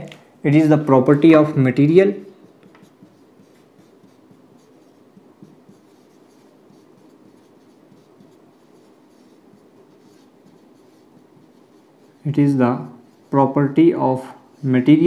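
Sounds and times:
marker scratching on whiteboard: 1.1s - 15.0s.

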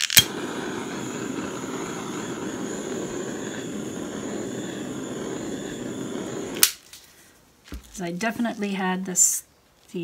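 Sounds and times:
faint high whine: 0.0s - 6.8s
whooshing motor noise: 0.2s - 6.7s.

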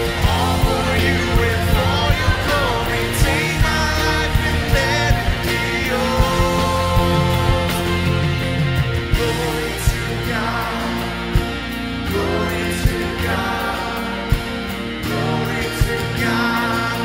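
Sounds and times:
steady beat: 0.0s - 12.0s
worship singing with instruments: 0.0s - 17.0s.

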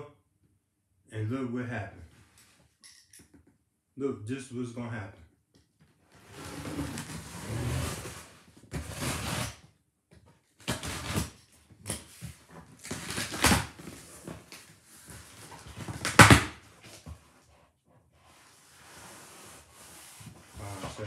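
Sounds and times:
cardboard rubbing: 6.2s - 9.6s, 18.2s - 21.0s
box cutter slicing cardboard: 6.3s - 9.6s, 10.6s - 11.4s, 12.8s - 14.1s.

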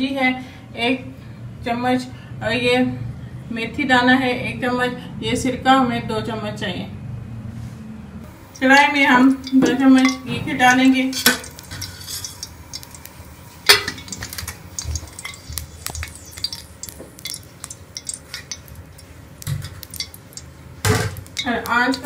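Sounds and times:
ghee crackling in a pan: 8.3s - 22.0s.

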